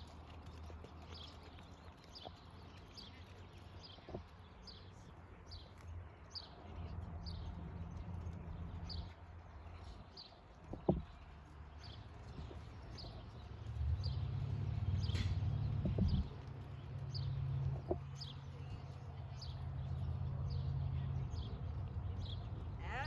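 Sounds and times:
bird chirping: 0.0s - 23.0s.

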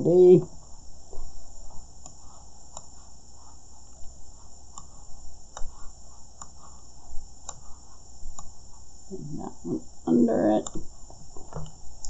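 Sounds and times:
computer mouse clicks: 2.0s - 3.0s, 3.9s - 6.7s, 7.4s - 7.7s.

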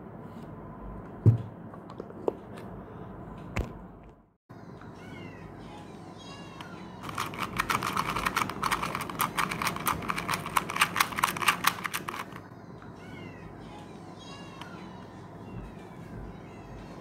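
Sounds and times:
puzzle cube plastic clicks: 7.0s - 12.4s.

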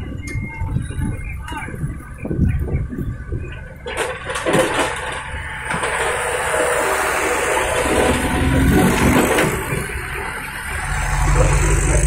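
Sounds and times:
trucks driving past: 3.7s - 12.0s.

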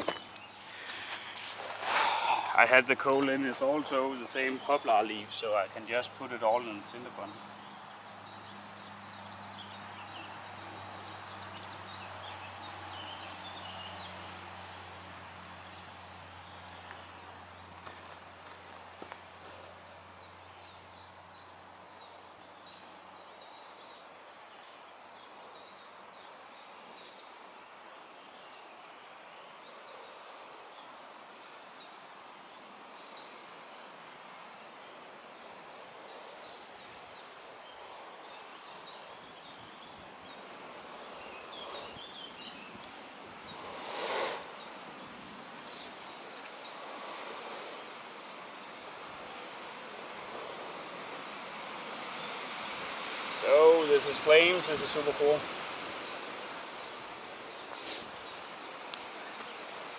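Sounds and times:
birds chirping: 0.0s - 59.9s
breath blowing into tinder: 0.7s - 2.6s, 40.6s - 42.2s, 43.5s - 44.7s, 46.7s - 48.1s, 57.6s - 58.4s.

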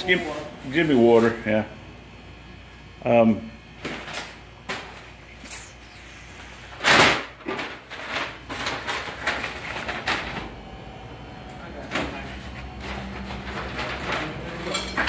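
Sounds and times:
dishes and utensils clattering: 13.5s - 15.0s.

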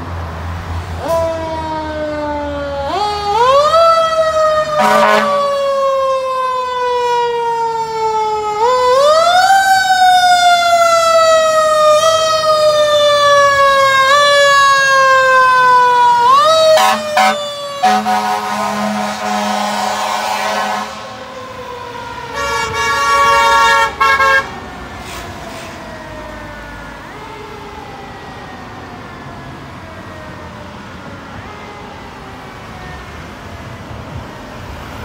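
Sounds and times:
fire truck horn blasts: 4.6s - 5.6s, 16.4s - 21.3s, 22.3s - 24.6s.

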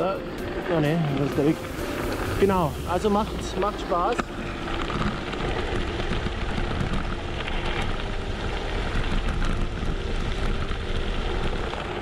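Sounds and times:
bike tyres crunching on gravel: 0.0s - 12.0s
wind noise on microphone: 1.5s - 12.0s.

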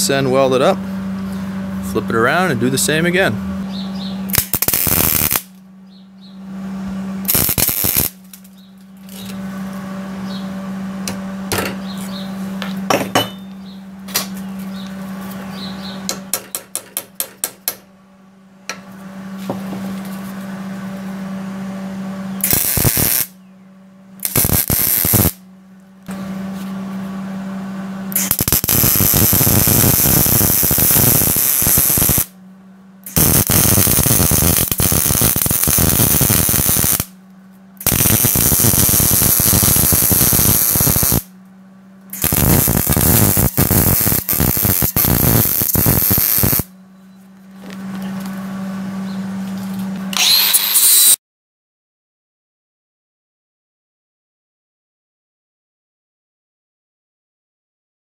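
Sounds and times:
steady hum: 0.0s - 51.2s
welder arc crackling and hissing: 4.3s - 5.6s, 7.3s - 8.4s, 22.4s - 23.3s, 24.2s - 25.4s, 28.2s - 32.3s, 33.1s - 37.1s, 37.8s - 41.3s, 42.2s - 46.7s.

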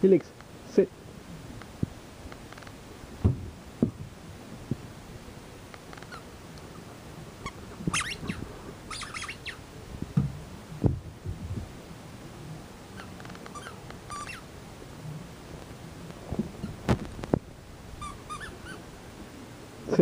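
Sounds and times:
dull thumps: 3.2s - 4.1s, 10.0s - 11.6s
puppy whining and squeaking: 6.0s - 6.3s, 7.4s - 9.6s, 12.9s - 14.5s, 18.0s - 18.9s.

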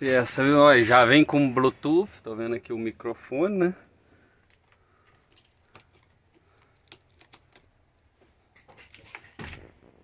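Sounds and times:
faint clicks and taps: 4.4s - 9.0s.

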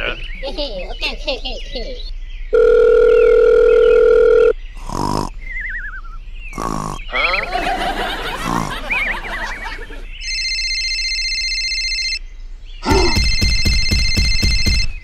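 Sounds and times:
phone ringtone: 2.6s - 4.5s, 10.2s - 12.2s, 13.1s - 15.0s
wavering grunt sound effects: 6.6s - 7.6s, 8.3s - 9.1s, 12.8s - 13.3s
buzzing vibration: 12.9s - 15.0s.

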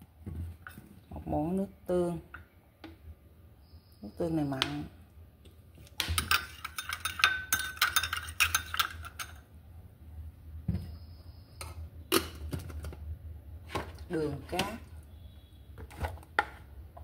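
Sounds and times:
metal spoon clinking on glass bowl: 6.2s - 9.4s.

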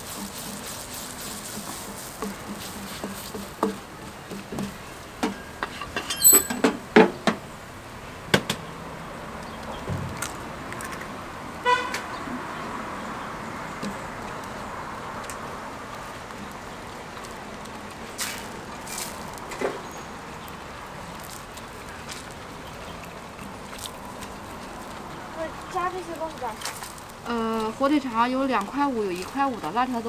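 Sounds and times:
steady cooking hiss: 0.0s - 5.3s
vehicle horn toot: 11.6s - 12.0s.

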